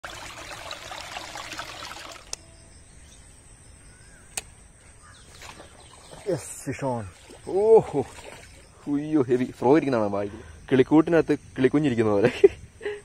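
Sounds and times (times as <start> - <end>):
stream trickling over stones: 0.0 - 2.4, 5.2 - 10.4
sharp clicks: 4.3 - 4.6.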